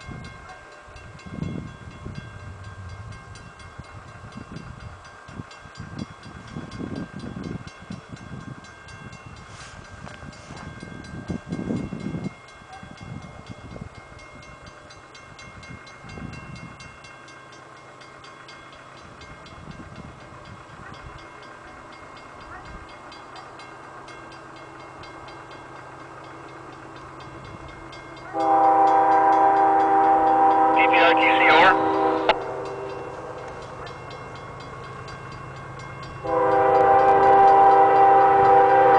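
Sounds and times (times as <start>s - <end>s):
crossing bell ringing: 0.0s - 38.9s
train approaching: 0.0s - 38.9s
locomotive air horn: 28.3s - 33.0s, 36.2s - 38.9s.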